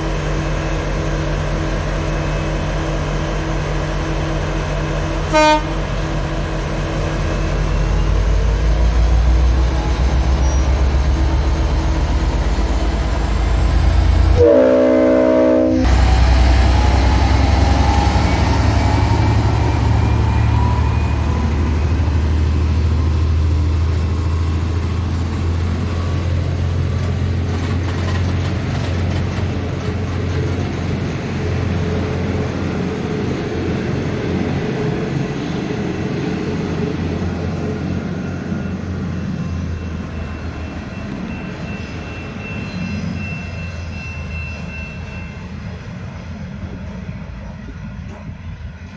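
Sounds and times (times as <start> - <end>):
locomotive engine droning: 0.0 - 48.9
train carriages rolling past: 0.0 - 48.9
train horn: 5.2 - 5.8, 14.4 - 16.0.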